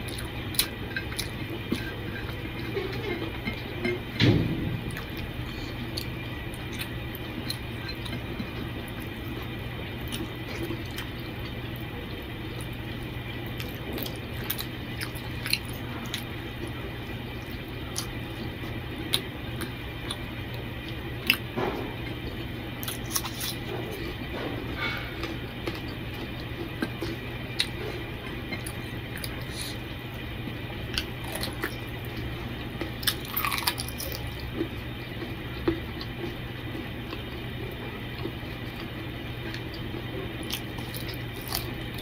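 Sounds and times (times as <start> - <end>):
steady low hum: 0.0 - 42.0
close chewing: 22.8 - 29.8, 30.9 - 36.4, 37.0 - 42.0.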